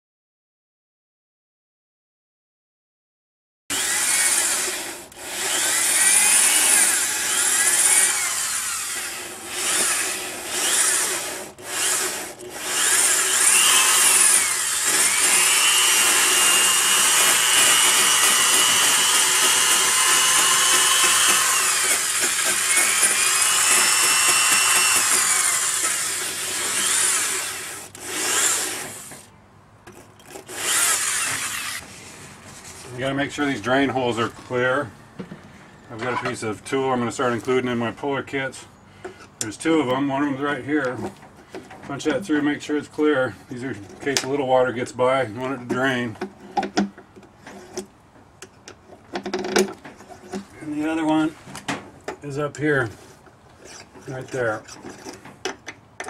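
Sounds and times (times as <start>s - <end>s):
power tool wire brush scrubbing: 3.7s - 29.3s, 29.9s - 32.1s.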